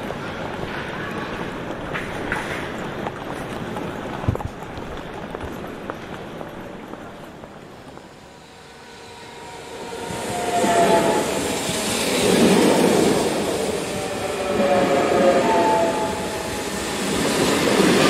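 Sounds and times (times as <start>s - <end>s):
train wheel and track noise: 0.0s - 18.0s
train wheels squealing: 8.1s - 18.0s.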